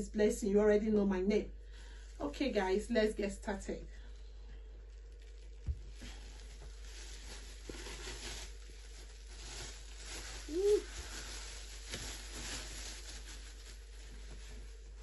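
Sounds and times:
plastic wrapping crinkling: 4.0s - 15.0s
person humming: 10.4s - 11.0s.

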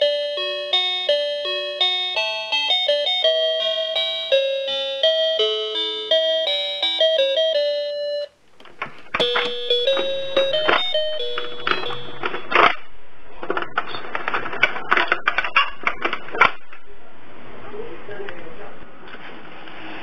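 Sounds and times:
toy laptop beeping electronic tune: 0.0s - 8.3s, 9.2s - 12.5s
rustling: 8.4s - 16.4s.

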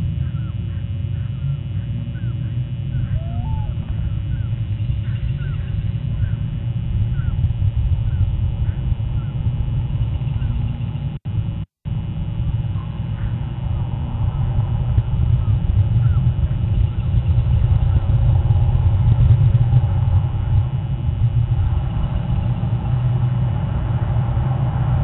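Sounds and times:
lower bird call: 0.0s - 11.2s, 12.6s - 18.9s
low outdoor rumble: 0.0s - 25.0s
small bird chirping: 0.1s - 11.2s.

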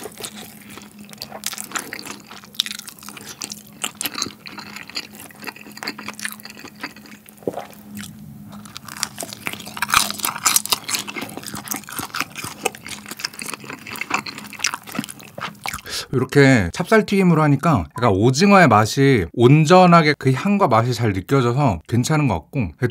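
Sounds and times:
crunching of fried food: 0.0s - 15.9s
wet chewing: 0.0s - 16.4s.

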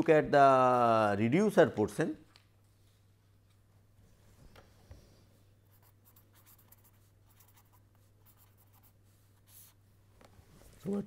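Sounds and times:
marker pen scratchy strokes: 5.6s - 9.8s.

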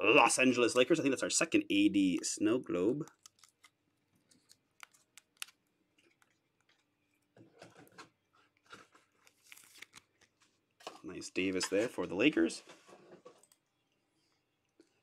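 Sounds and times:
plastic sleeve crinkling: 2.0s - 13.6s.

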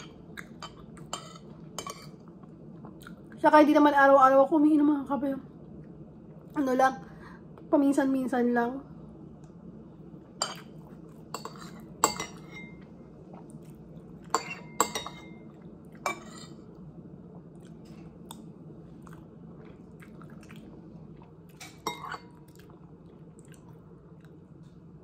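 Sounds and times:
low steady hum: 0.0s - 25.0s
metal spoon clinking on ceramic plate: 11.3s - 12.8s, 14.3s - 15.4s.

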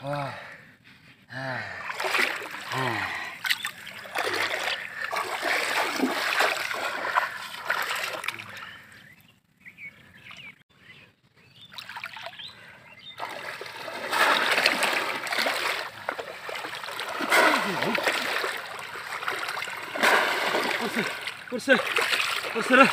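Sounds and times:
water splashing: 1.9s - 8.6s, 11.8s - 12.3s, 13.2s - 22.9s.

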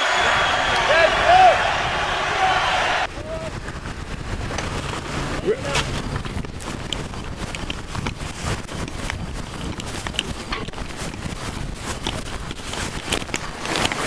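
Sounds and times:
wind rumble on microphone: 0.2s - 14.0s
sail cloth flapping on microphone: 0.3s - 14.0s
knocks and scrapes: 4.3s - 14.0s.

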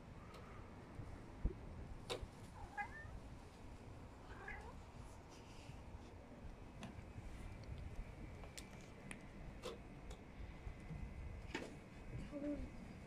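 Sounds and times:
cat meowing: 2.6s - 3.2s.

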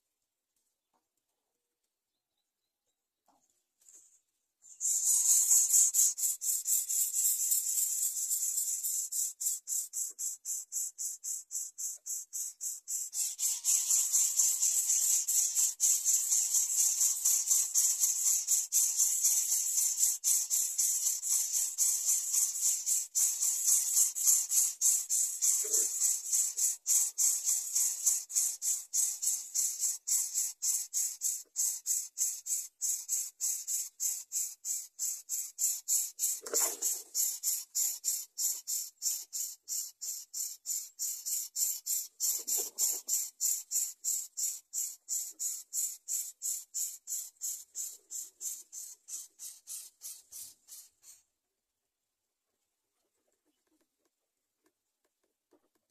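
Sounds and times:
pulsing high hiss: 4.7s - 8.9s.

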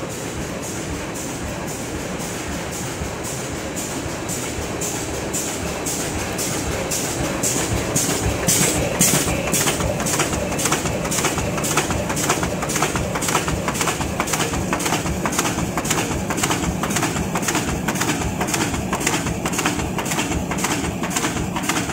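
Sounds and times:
machine humming: 0.0s - 21.9s
die cutting press clacking: 8.1s - 21.9s.

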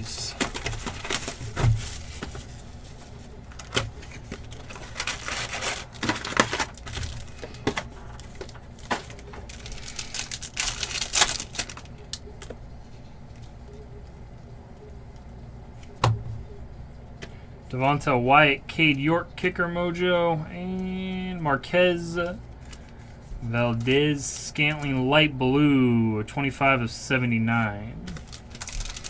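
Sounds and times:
cardboard flaps rustling: 0.0s - 11.7s
foil wrappers crinkling and ripping: 0.0s - 12.5s, 28.1s - 29.0s.

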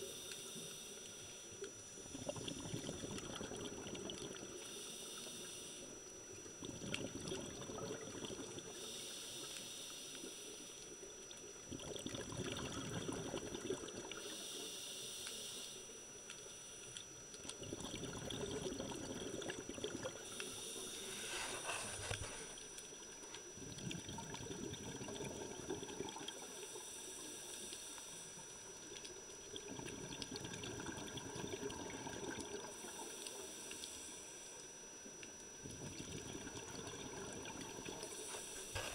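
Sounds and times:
bubbling exhale: 2.0s - 5.8s, 6.6s - 10.7s, 11.7s - 15.8s, 17.6s - 22.8s, 23.5s - 28.5s, 35.6s - 38.9s
diver breathing through regulator: 8.7s - 10.8s, 14.2s - 15.9s, 20.2s - 22.7s, 38.0s - 38.9s.

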